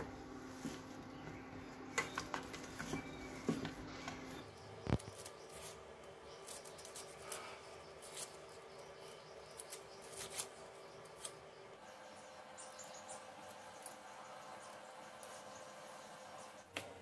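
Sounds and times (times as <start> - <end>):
dry skins crackling as peeled: 1.8 - 11.8.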